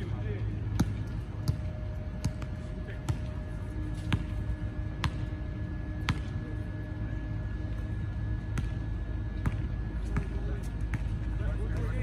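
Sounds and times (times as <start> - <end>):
faint hum: 0.0 - 12.0
basketball bouncing on hard court: 0.7 - 6.4, 8.5 - 8.8, 9.4 - 12.0.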